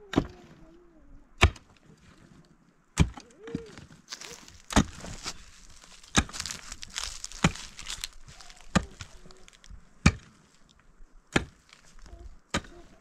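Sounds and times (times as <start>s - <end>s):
pickaxe striking earth: 1.4s - 1.8s, 3.0s - 9.4s, 10.0s - 10.5s, 11.3s - 11.9s, 12.5s - 12.9s.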